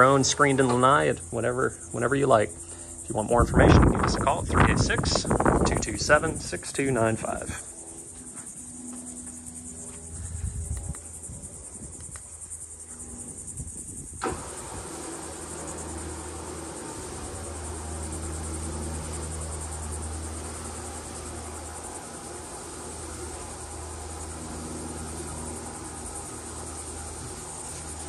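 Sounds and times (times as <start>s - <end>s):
broad rushing noise: 0.0s - 7.7s, 13.1s - 28.0s
high-pitched buzz: 0.0s - 28.0s
screen motor humming: 14.2s - 28.0s.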